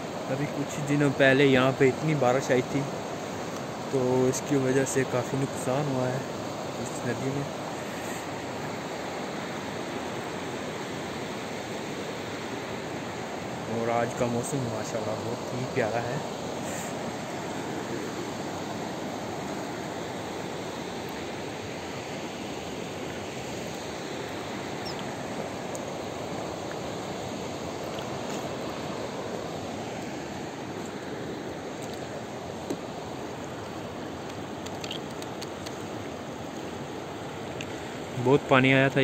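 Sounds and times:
river rushing over stones: 0.0s - 39.0s
faint ticks: 33.6s - 35.8s, 37.5s - 37.8s.

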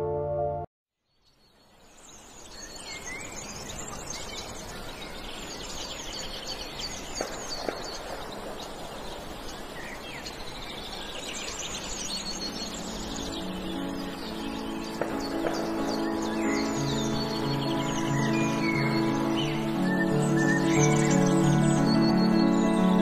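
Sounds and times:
outdoor background noise: 1.0s - 23.0s
small birds chirping: 1.0s - 23.0s.

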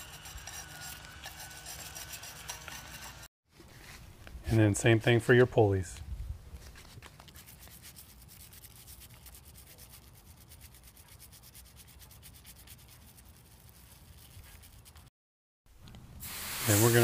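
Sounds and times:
brush scrubbing: 0.0s - 3.3s, 7.2s - 15.1s.

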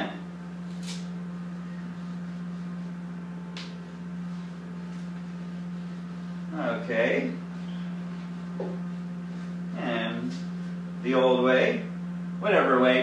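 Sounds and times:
low hum: 0.0s - 13.0s
banana peel tearing: 0.7s - 1.1s.

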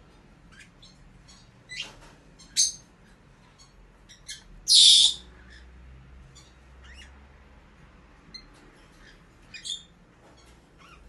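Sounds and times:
canary chirping: 0.4s - 7.4s, 8.2s - 11.0s
harsh bird call burst: 4.7s - 5.2s.

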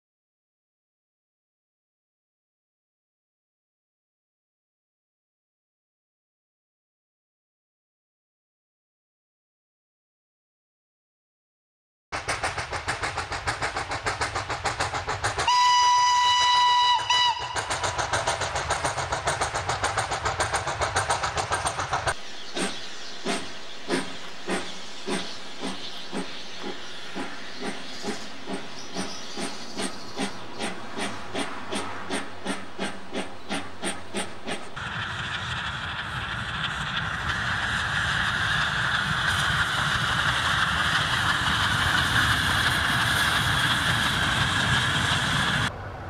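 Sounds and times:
steam locomotive chuffing: 12.2s - 46.0s
train running noise: 12.2s - 46.0s
steam whistle blast: 15.4s - 17.7s.

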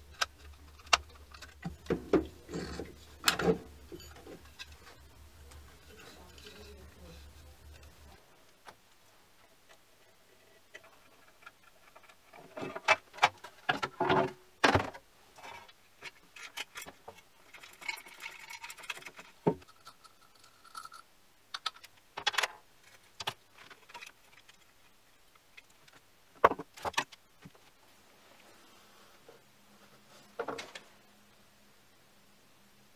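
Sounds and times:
metal parts clicking and rattling: 0.0s - 5.0s, 16.1s - 21.0s.

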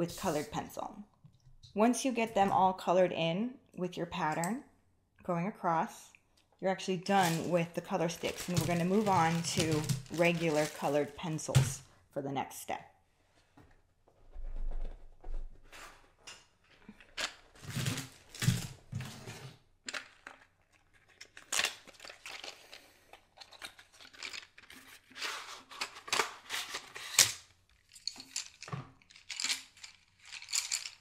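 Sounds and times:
pencils clicking and clattering: 7.1s - 11.8s, 19.8s - 31.0s.

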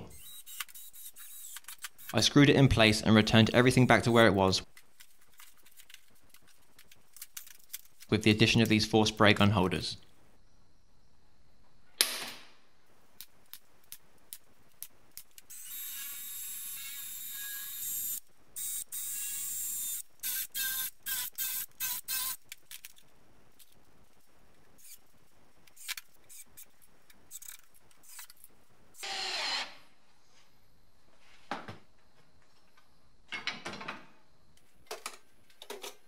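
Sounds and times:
cordless drill whirring: 0.1s - 2.2s, 15.5s - 22.4s, 29.0s - 29.8s.

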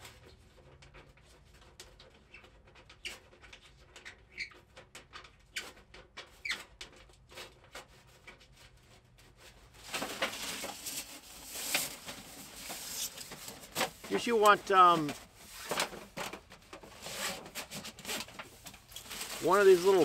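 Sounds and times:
loud rustling: 9.8s - 20.0s.

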